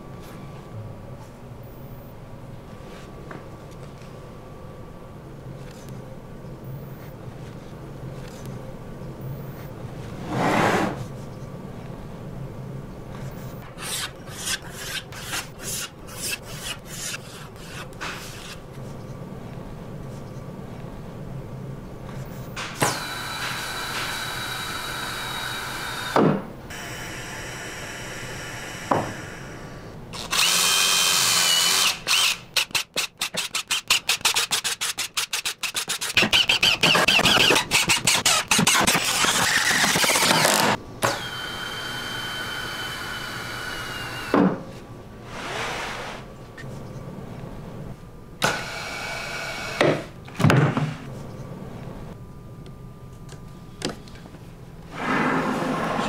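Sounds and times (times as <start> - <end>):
impact driver whining: 36.1 - 44.4.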